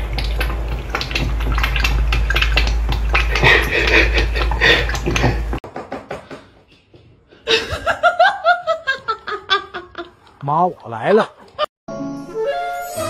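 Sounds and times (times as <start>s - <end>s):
person laughing: 3.4s - 5.4s, 7.4s - 10.3s.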